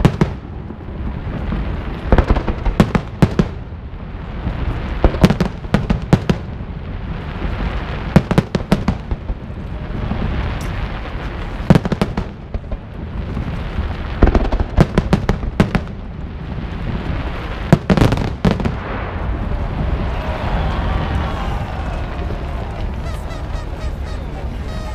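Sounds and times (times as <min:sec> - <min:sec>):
fireworks bursting in bangs: 0:00.0 - 0:24.9
low rumble: 0:18.6 - 0:24.9.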